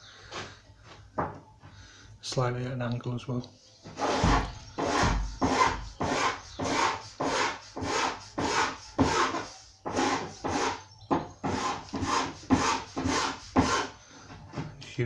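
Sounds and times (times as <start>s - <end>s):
steel file rasping: 4.0s - 10.8s.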